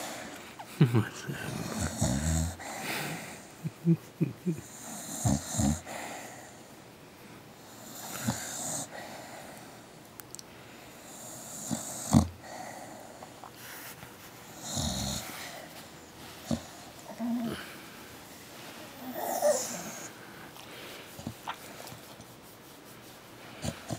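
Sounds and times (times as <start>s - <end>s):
dog snoring and breathing: 1.1s - 3.5s, 4.6s - 6.7s, 7.6s - 9.9s, 10.8s - 17.9s, 18.8s - 21.7s, 23.5s - 23.9s
dog groaning: 1.2s - 2.7s, 16.4s - 17.8s, 19.0s - 20.2s
dog snorting: 1.4s - 3.3s, 16.3s - 17.7s, 23.5s - 23.9s.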